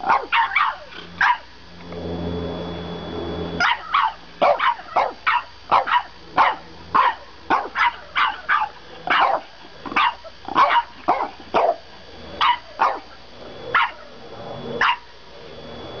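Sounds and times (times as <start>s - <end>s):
dogs yapping barks: 0.0s - 1.5s, 3.6s - 11.8s, 12.4s - 13.1s, 13.7s - 14.1s, 14.8s - 15.1s.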